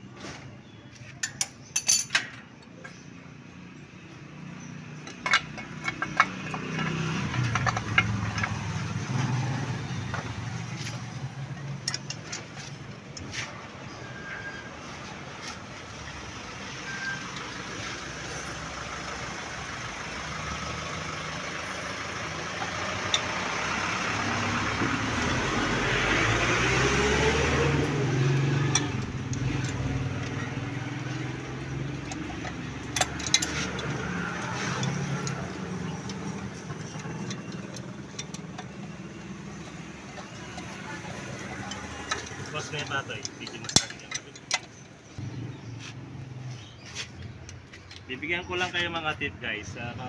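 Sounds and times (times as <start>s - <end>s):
metal clicks and knocks: 0.9s - 3.2s, 5.0s - 13.3s, 22.2s - 27.1s, 27.8s - 45.2s, 47.2s - 49.1s
vehicle engine passing by: 5.8s - 44.0s, 45.1s - 50.0s.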